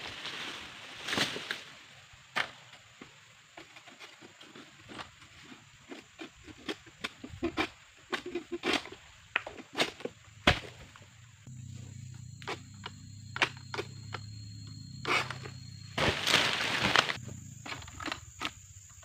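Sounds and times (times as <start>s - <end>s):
fronds rustling: 0.0s - 2.0s, 15.0s - 18.0s
steady low hum: 10.4s - 18.9s
sickle cracking palm fronds: 16.0s - 17.2s.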